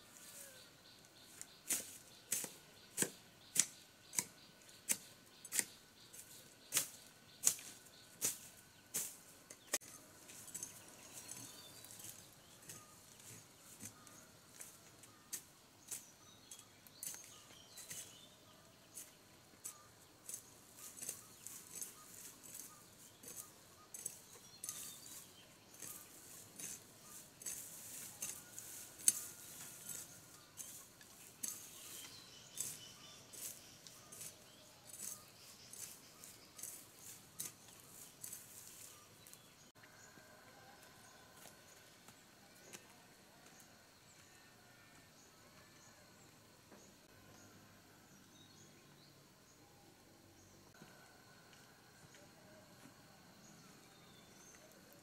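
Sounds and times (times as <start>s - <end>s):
hand tool hacking into soil: 1.6s - 10.0s, 19.0s - 30.8s.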